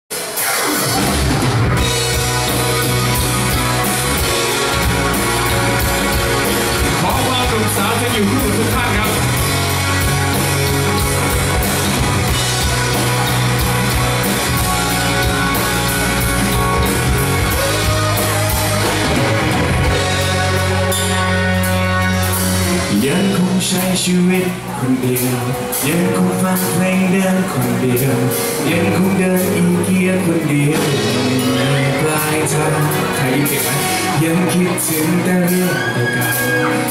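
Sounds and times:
pop-rock band playing: 0.1 - 36.9.

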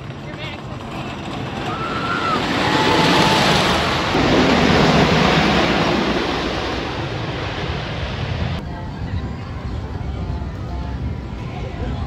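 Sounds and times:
roller coaster rumbling on track: 0.0 - 12.0.

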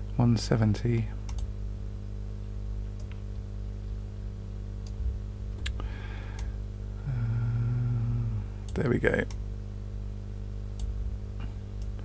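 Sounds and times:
low hum: 0.0 - 12.0
computer mouse clicks: 1.3 - 1.5.

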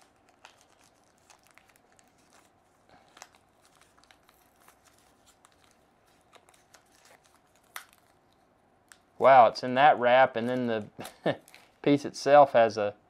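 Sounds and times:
packaging wrap crinkling: 0.0 - 9.4, 10.2 - 12.0.

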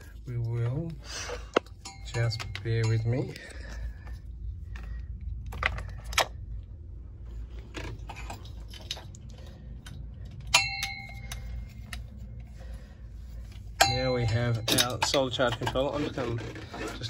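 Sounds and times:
metal hardware clicks and knocks: 0.4 - 4.2, 7.7 - 12.5, 13.6 - 17.0
low rumble: 2.0 - 14.7
sharp metallic clang: 10.5 - 11.5, 13.8 - 15.3.

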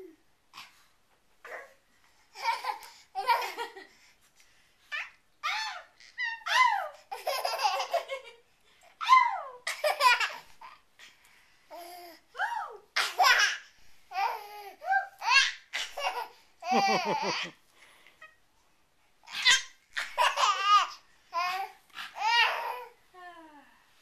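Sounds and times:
baby laughing and squealing: 4.9 - 8.1, 13.1 - 17.6, 19.2 - 22.9.

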